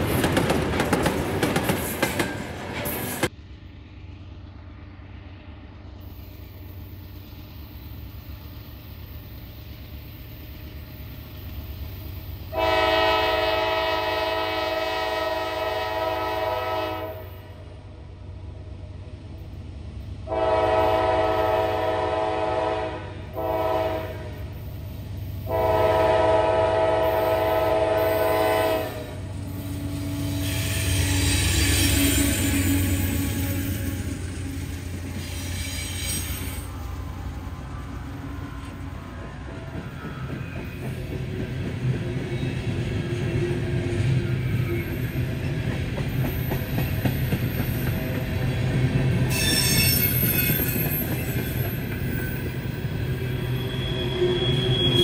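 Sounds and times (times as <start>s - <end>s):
low rumble of locomotives: 0.0s - 55.0s
locomotive horn blasts: 12.5s - 17.6s, 20.3s - 24.4s, 25.4s - 29.2s.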